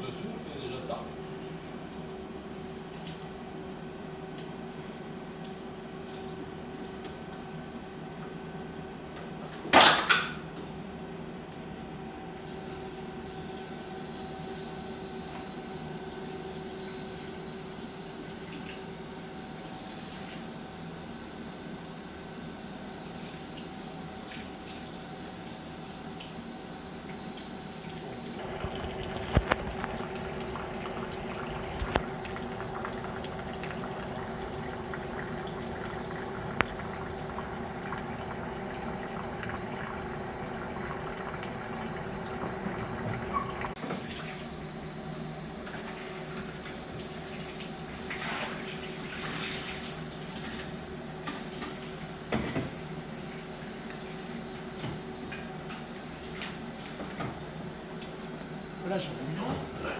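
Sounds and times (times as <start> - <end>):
water rushing from hose: 28.4 - 37.7.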